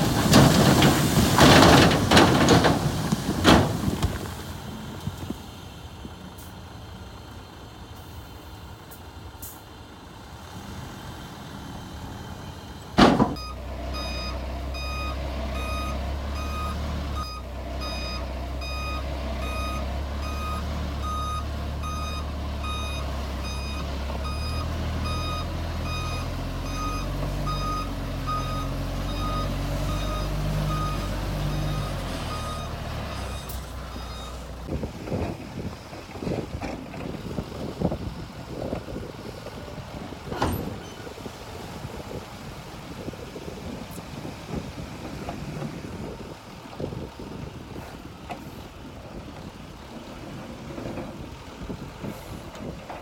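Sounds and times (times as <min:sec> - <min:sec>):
diesel earthmover engine: 0:00.0 - 0:53.0
reversing alarm beeping: 0:13.4 - 0:34.4.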